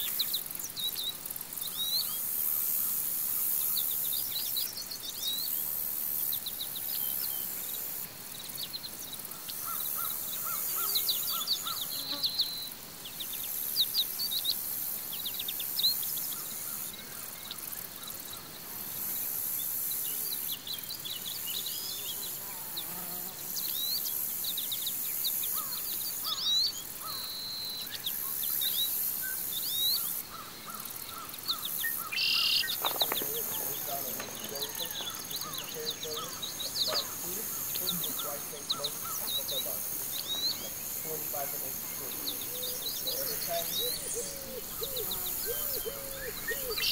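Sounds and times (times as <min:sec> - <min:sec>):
small birds chirping: 0:00.0 - 0:46.9
high-pitched insect drone: 0:23.0 - 0:46.9
repeated lower bird notes: 0:32.0 - 0:46.9.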